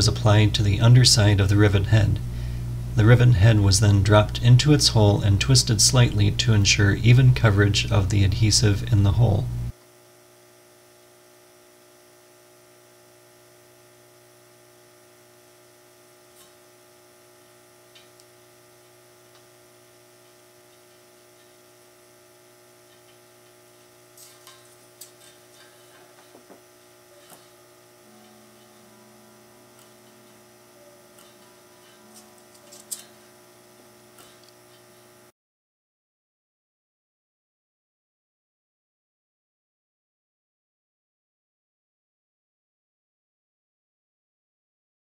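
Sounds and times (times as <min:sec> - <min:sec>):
low electrical hum: 0:00.0 - 0:35.3
metal rivets clicking: 0:24.2 - 0:26.4, 0:31.1 - 0:33.3.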